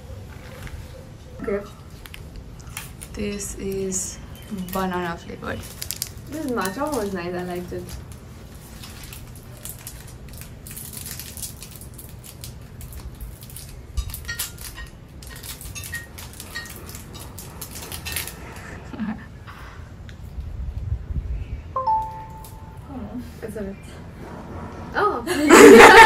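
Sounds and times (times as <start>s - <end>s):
plastic wrapper crinkling: 1.8s - 18.6s.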